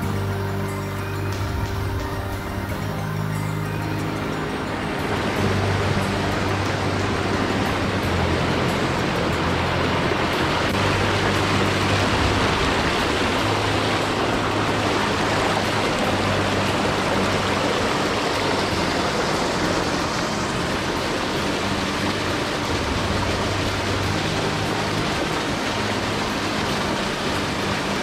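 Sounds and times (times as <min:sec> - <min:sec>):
mountain stream rushing: 0:00.0 - 0:28.0
music with low sustained notes: 0:00.0 - 0:28.0.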